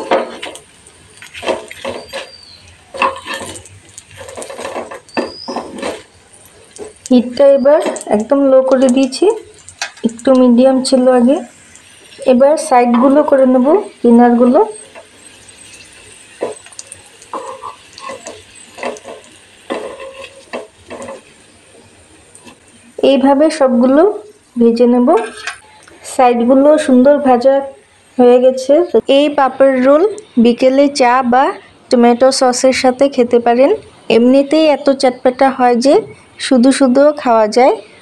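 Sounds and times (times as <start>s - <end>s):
metal spatula scraping frying pan: 0.0s - 7.1s, 11.8s - 22.9s, 25.1s - 25.7s
faint oil sizzle: 0.0s - 38.0s.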